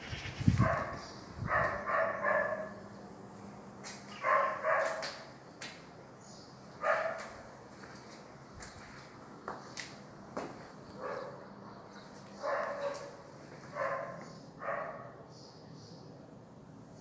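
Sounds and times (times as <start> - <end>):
dog barking: 0.6 - 2.8, 4.2 - 5.2, 6.8 - 7.4, 11.0 - 11.5, 12.4 - 15.2.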